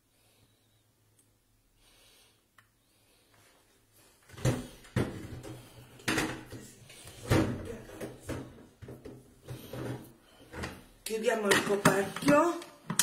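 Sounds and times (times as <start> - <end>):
kitchen items knocking: 4.4 - 10.8, 11.4 - 13.0.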